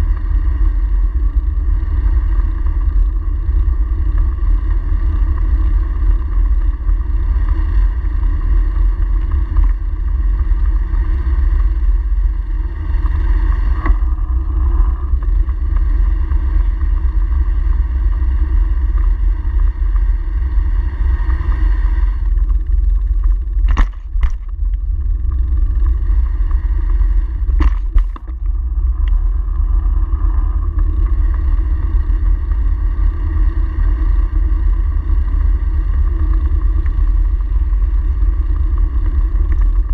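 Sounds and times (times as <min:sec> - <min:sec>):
bicycle tyre rumble on brick: 0:00.0 - 0:39.9
low hum: 0:00.0 - 0:39.9
sharp clicks and knocks: 0:23.2 - 0:24.9, 0:27.5 - 0:29.2.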